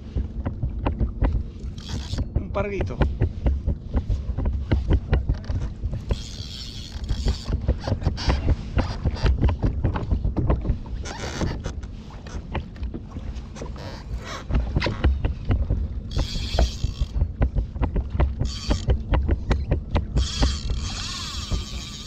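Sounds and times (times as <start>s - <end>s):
wind on microphone: 0.0s - 22.0s
fishing gear knocking on plastic kayak: 2.1s - 6.2s, 14.6s - 20.8s.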